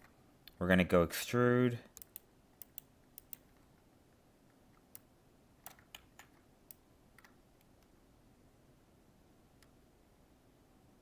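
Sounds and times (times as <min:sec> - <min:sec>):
mouse and keyboard clicks: 0:01.9 - 0:03.7, 0:04.7 - 0:07.9.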